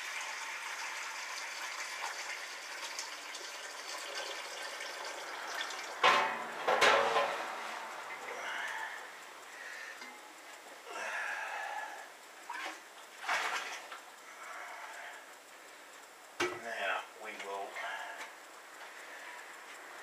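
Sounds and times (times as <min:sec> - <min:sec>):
hot water splashing into pot: 0:00.0 - 0:06.3
loud metal clanks: 0:06.0 - 0:07.5.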